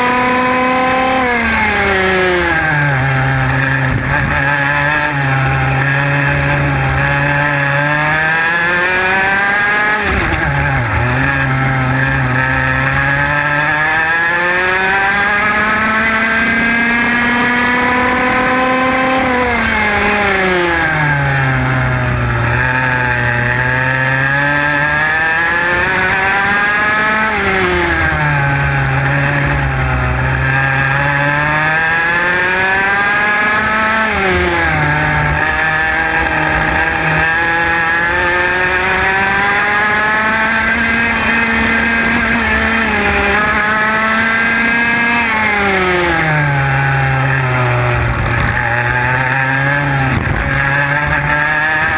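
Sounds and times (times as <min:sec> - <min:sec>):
kart engine revving: 0:00.0 - 0:51.9.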